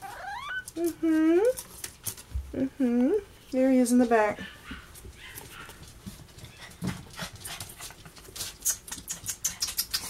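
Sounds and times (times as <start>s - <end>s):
puppies scratching and scuffling: 0.0s - 2.6s, 3.3s - 10.0s.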